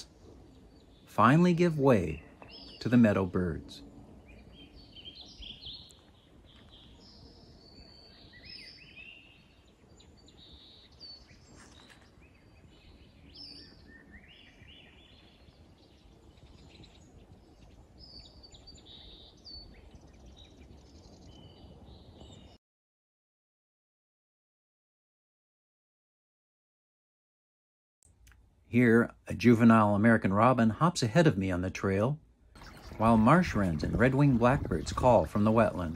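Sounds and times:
low background rumble: 0.0s - 8.6s
songbirds singing: 0.0s - 22.6s, 28.1s - 35.9s.

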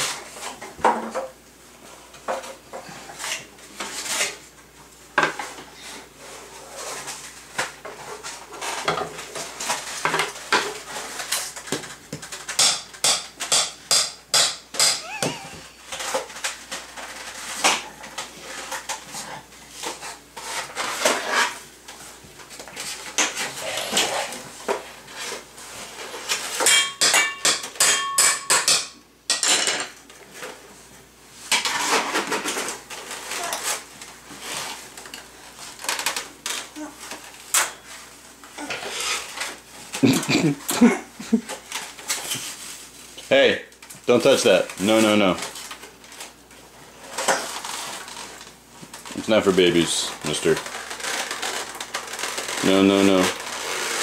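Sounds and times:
metal pans clattering: 26.2s - 30.0s.

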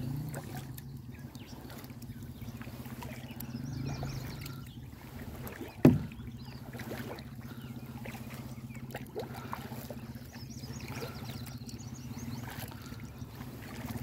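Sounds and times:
boat motor humming: 0.0s - 14.0s
sharp knock against boat: 5.8s - 6.3s.

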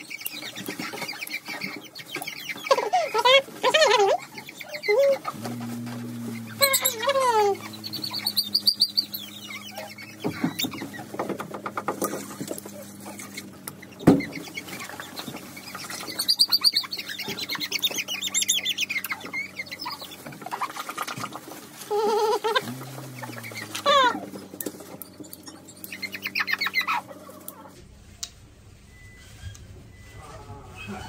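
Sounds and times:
puppy squealing and whimpering: 2.7s - 5.3s, 6.6s - 11.1s, 21.9s - 24.4s.

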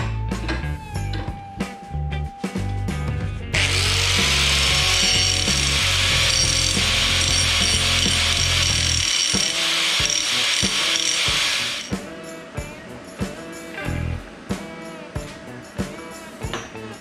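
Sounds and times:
background music with bass line: 0.0s - 9.0s, 11.8s - 17.0s
angle grinder cutting metal: 3.6s - 12.0s.

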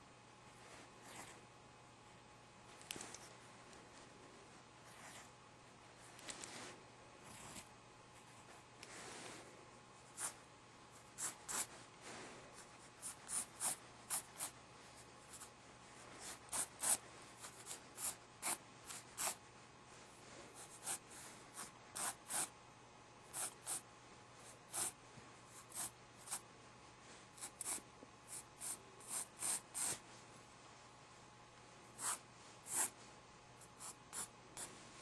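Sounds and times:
pen scratching on paper: 11.1s - 11.7s, 13.0s - 14.6s, 16.2s - 19.4s, 20.6s - 22.5s, 23.3s - 23.8s, 24.7s - 25.0s, 25.6s - 26.4s, 27.4s - 30.0s, 32.0s - 33.0s, 33.7s - 34.7s.

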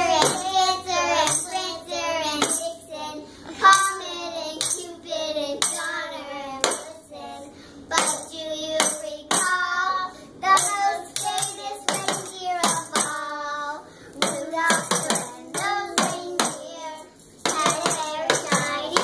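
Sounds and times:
girls singing: 0.0s - 19.0s
tambourine: 1.2s - 1.6s, 10.6s - 13.3s, 14.2s - 16.7s
maracas shaking: 10.6s - 13.3s, 14.1s - 19.0s.

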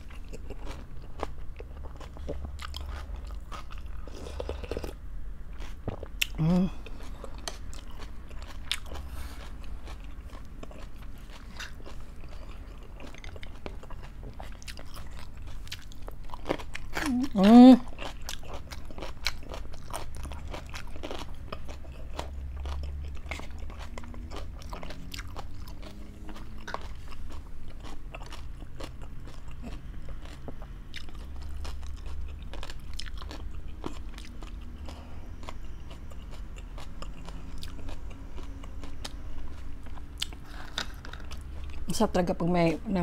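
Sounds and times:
chewing crunchy food: 0.0s - 41.9s
low steady hum: 0.0s - 43.0s.

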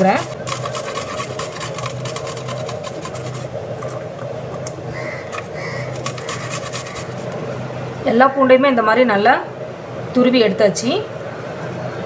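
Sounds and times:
garlic rasping on grater: 0.0s - 4.0s, 5.3s - 7.3s
steady low hum: 0.0s - 12.0s.

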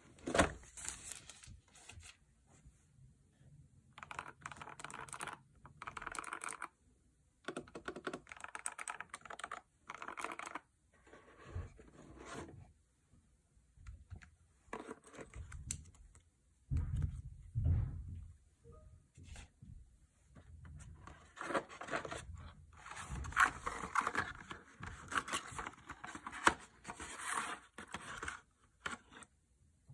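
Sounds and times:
mechanical keyboard typing: 3.9s - 6.8s, 7.4s - 10.6s.

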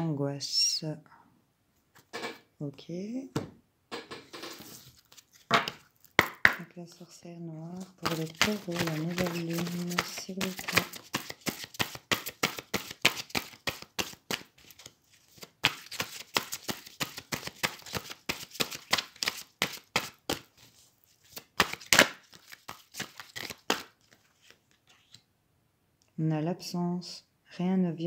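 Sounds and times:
cards being shuffled: 4.5s - 6.5s, 7.7s - 25.2s.

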